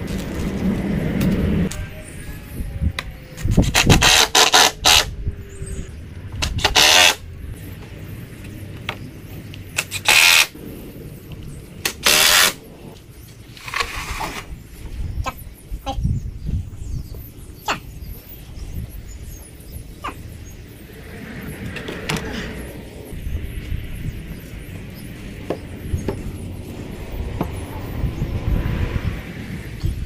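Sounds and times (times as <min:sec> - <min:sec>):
cordless drill driving screws: 0:06.5 - 0:07.2, 0:09.8 - 0:10.5, 0:12.0 - 0:12.6.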